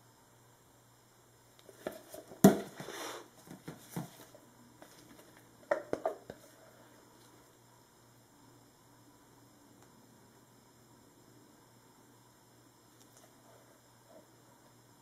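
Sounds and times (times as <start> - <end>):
plastic pitchers knocking on table: 1.8 - 2.9.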